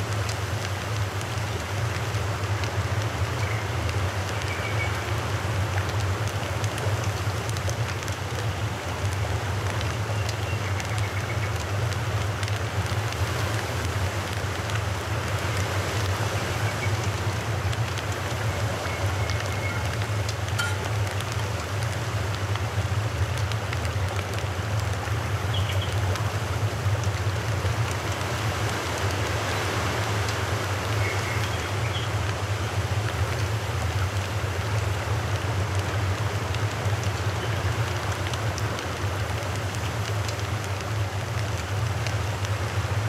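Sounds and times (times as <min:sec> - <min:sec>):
fish deep-frying in hot oil: 0:16.3 - 0:27.0.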